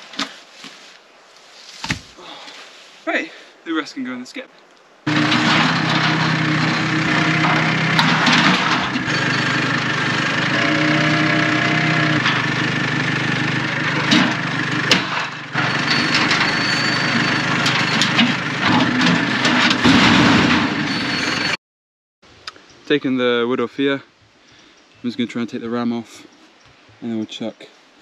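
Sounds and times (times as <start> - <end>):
metal frame knocking and clanking: 5.1 - 21.6
tractor engine running: 5.1 - 21.6.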